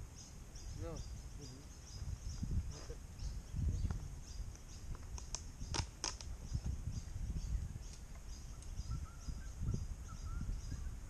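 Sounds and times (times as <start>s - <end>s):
birds chirping: 0.0s - 11.0s
wind rumble on microphone: 0.0s - 11.0s
sharp clicks: 4.5s - 6.3s.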